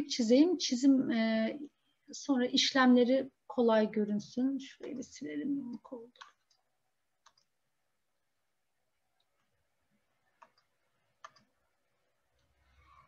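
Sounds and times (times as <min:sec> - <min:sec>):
computer mouse clicks: 0:04.8 - 0:05.2, 0:06.1 - 0:07.6, 0:10.2 - 0:11.6.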